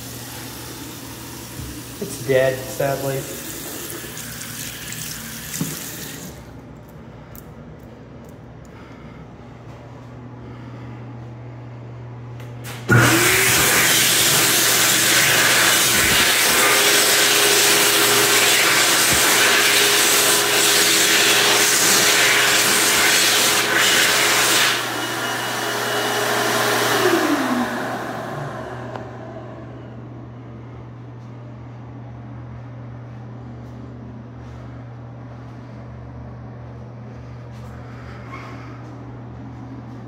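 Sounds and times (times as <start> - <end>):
hand dryer rushing air: 0.0 - 6.5, 12.6 - 30.0.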